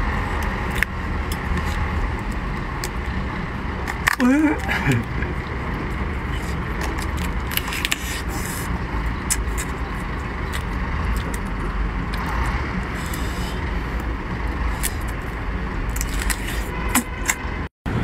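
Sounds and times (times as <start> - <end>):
steady low rumble: 0.0 - 18.0
crab shell cracking and chewing: 0.4 - 3.1, 6.2 - 12.3, 14.7 - 15.2, 15.9 - 17.4.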